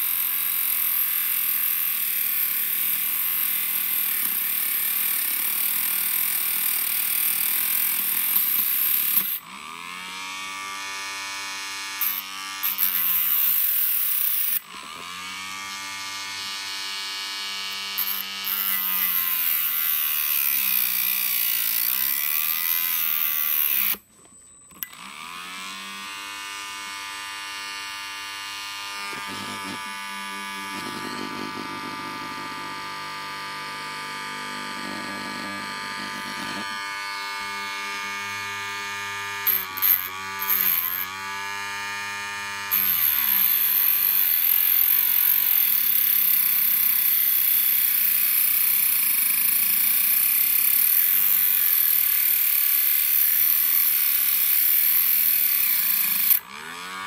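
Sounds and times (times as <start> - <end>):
rotary tool whining: 0.0 - 57.0
disc grinding steel: 17.9 - 20.6, 39.4 - 41.2.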